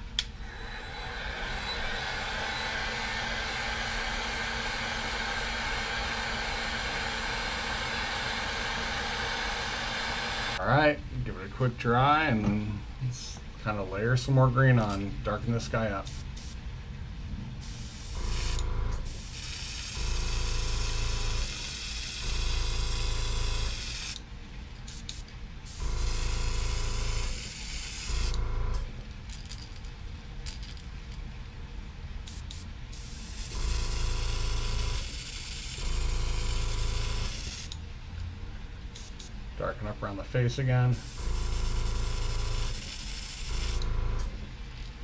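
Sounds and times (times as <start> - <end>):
low hum: 0.0 - 11.5, 16.7 - 21.5, 28.1 - 32.2, 43.5 - 45.0
airbrush spraying hiss: 16.1 - 16.6, 17.6 - 24.2, 24.9 - 28.4, 32.3 - 37.8, 39.0 - 39.4, 40.9 - 43.8.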